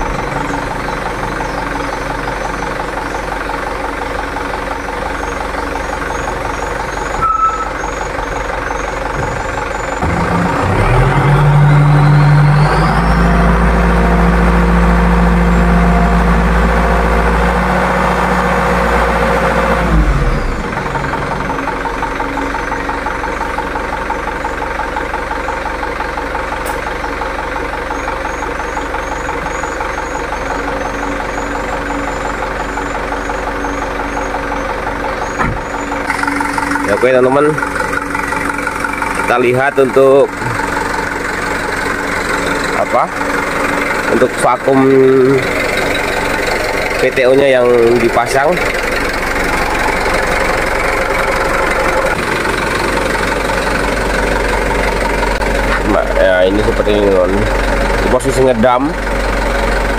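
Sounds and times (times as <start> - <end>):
diesel truck engine idling: 0.0 - 59.9
engine revving under hydraulic load: 9.2 - 22.2.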